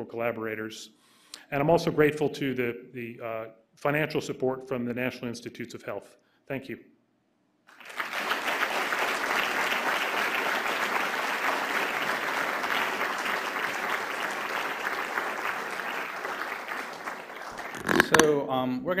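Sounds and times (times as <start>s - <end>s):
audience applauding: 7.7s - 18.2s.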